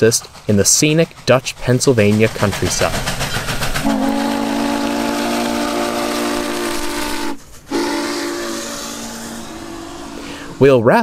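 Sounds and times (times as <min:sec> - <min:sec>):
steam hissing: 0:00.0 - 0:11.0
steam whistle blast: 0:03.8 - 0:10.6.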